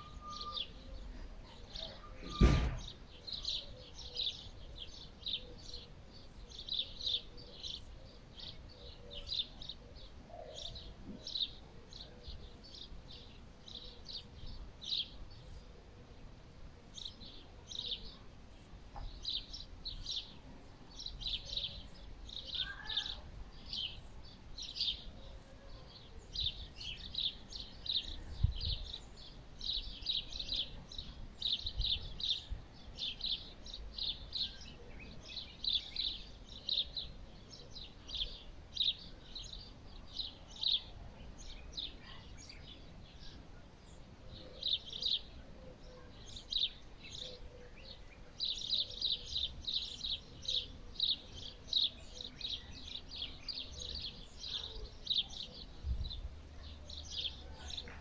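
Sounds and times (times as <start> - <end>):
small birds chirping: 0.0 - 58.0
low thump: 2.2 - 3.0.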